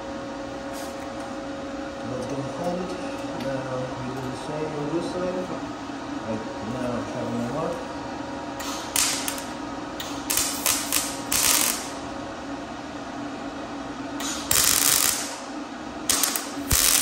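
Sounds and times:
steady low hum: 0:00.0 - 0:17.0
welding arc bursts: 0:08.6 - 0:09.5, 0:10.2 - 0:12.0, 0:14.2 - 0:15.4, 0:16.1 - 0:17.0.

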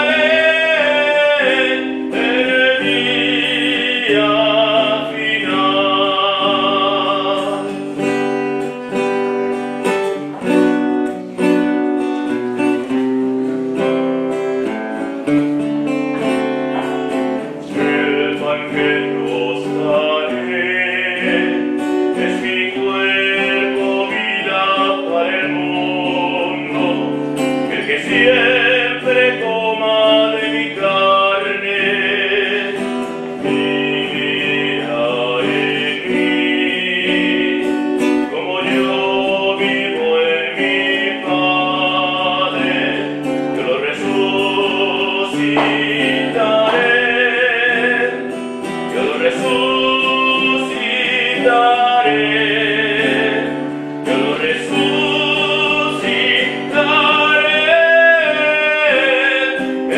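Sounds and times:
acoustic guitar: 0:00.0 - 0:59.9
person singing: 0:00.0 - 0:59.9.

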